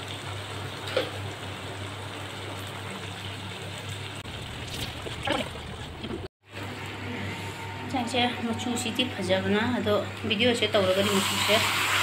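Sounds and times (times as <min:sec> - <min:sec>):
curry simmering with steady hiss: 0:00.0 - 0:06.2
low hum: 0:04.2 - 0:10.8.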